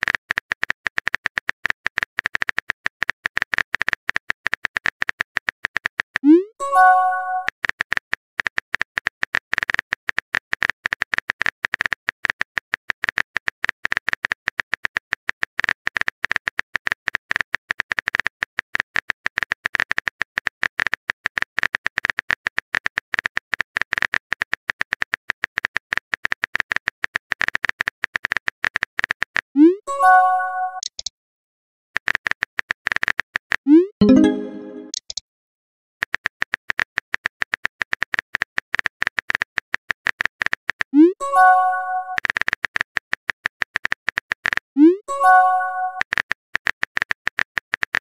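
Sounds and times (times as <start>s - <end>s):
rapid keyboard key clicks: 0.0s - 6.3s, 36.0s - 40.9s.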